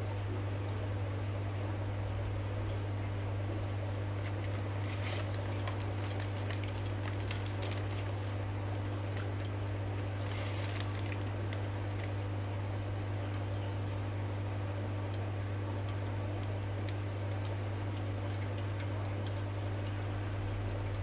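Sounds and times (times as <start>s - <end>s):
aquarium equipment humming: 0.0s - 21.0s.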